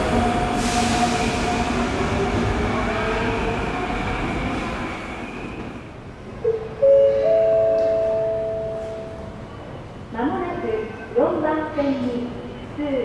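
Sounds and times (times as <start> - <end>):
train pulling away: 0.0 - 6.0
electronic train-approach chime: 6.5 - 9.4.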